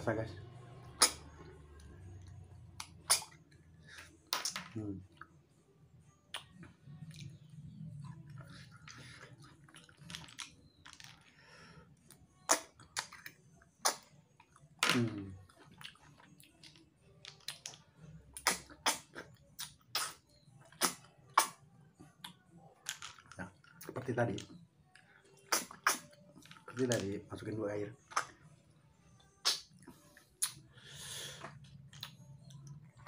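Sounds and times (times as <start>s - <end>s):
chewing: 6.3s - 10.8s, 15.4s - 17.8s.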